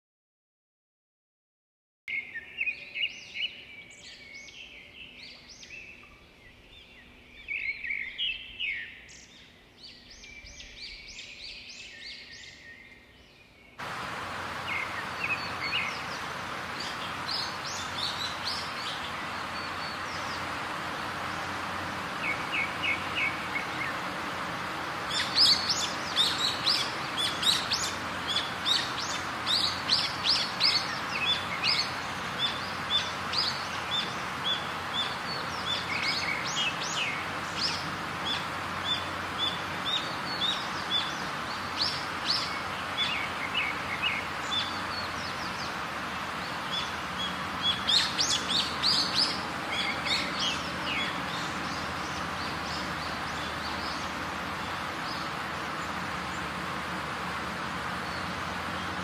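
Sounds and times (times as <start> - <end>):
birds chirping: 2.1 - 59.0
stream water rushing: 13.8 - 59.0.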